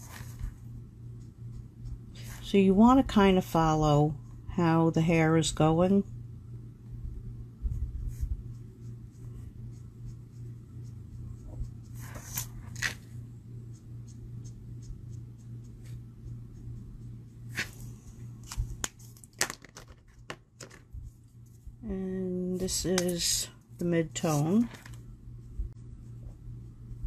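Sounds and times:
steady low hum: 0.0 - 27.0
marker scratching on card: 1.1 - 2.4, 8.1 - 17.8.

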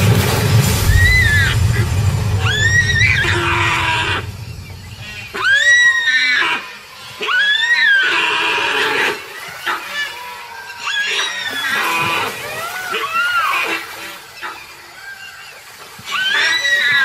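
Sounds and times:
water splashing: 0.0 - 17.0
deer distress calls: 5.3 - 17.0.

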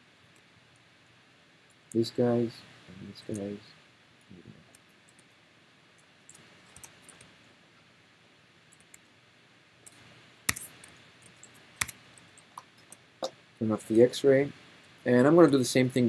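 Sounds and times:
low room hiss: 0.0 - 16.0
mouse and keyboard clicks: 9.9 - 12.0.

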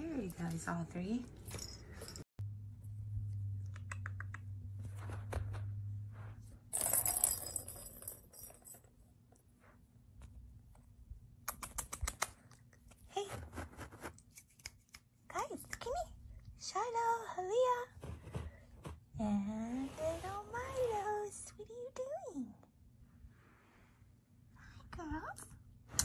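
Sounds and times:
low steady hum: 0.0 - 11.5.

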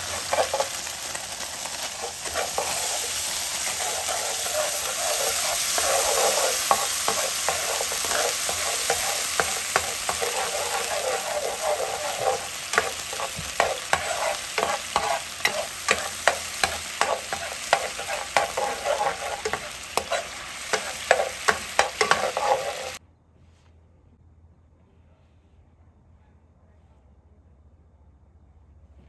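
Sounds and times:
garlic sizzling in sauce: 0.0 - 23.0
spatula scraping a frying pan: 0.0 - 23.0.

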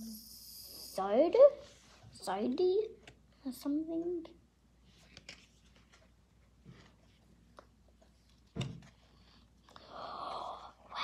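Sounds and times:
trading cards rustling and clicking: 5.0 - 6.2.

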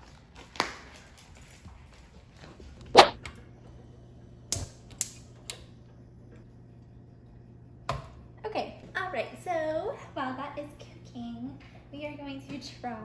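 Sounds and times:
sharp knock: 3.0 - 3.2
gas hob igniter clicking: 4.5 - 5.6.

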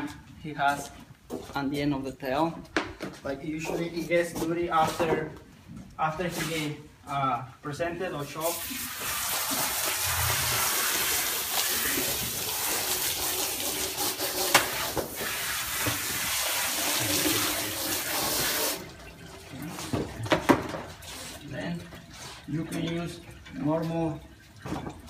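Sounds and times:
water running from a hose: 8.4 - 19.9.

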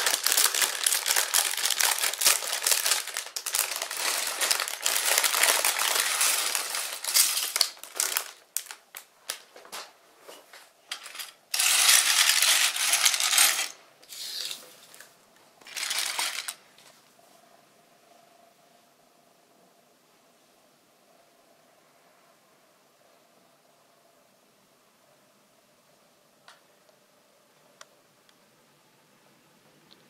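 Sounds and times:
plastic bricks clattering onto plate: 0.0 - 8.8, 10.9 - 14.6, 15.6 - 16.6
plastic bag crinkling: 0.0 - 9.5, 11.0 - 16.7.

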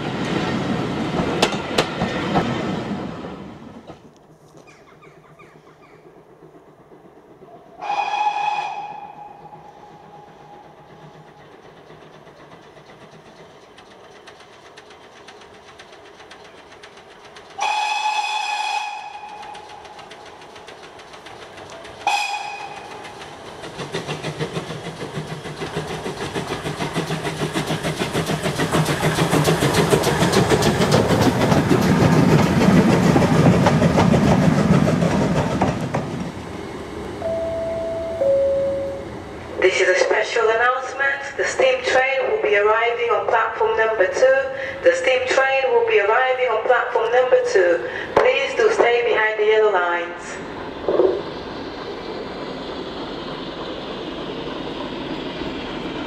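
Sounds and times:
steam engine chuffing: 5.1 - 37.1
steam locomotive whistle: 7.7 - 10.9, 17.6 - 19.7, 22.0 - 23.0.

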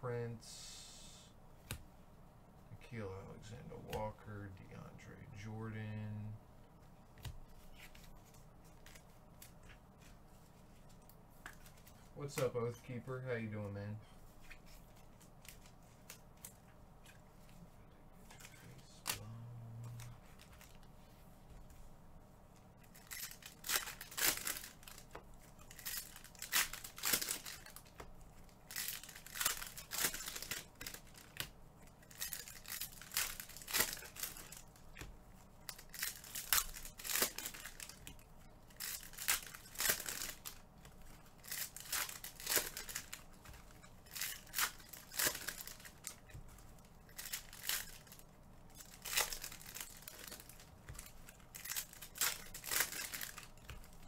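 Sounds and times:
foil wrappers tearing and crinkling: 22.8 - 54.0.

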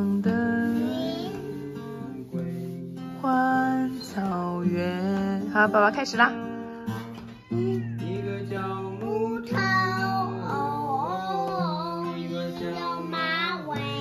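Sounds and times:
acoustic guitar strumming: 0.0 - 14.0
toddler singing: 0.2 - 2.2, 9.0 - 14.0.

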